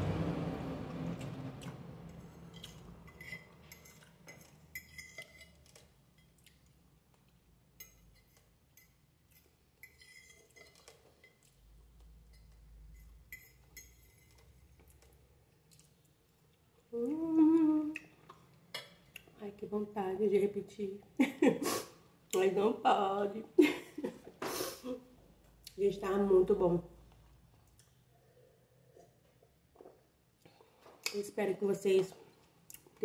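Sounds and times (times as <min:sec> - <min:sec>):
cutlery clinking on a plate: 0:02.5 - 0:06.3
person humming: 0:17.0 - 0:18.0.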